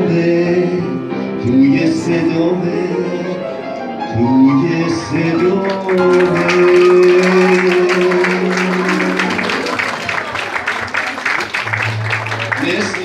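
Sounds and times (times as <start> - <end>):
live pop song chord: 0.0 - 10.1
audience applause: 4.8 - 13.0.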